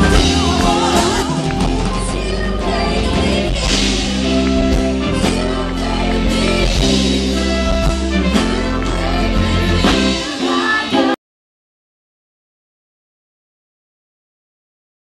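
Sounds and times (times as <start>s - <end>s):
rock song with singer: 0.0s - 11.2s.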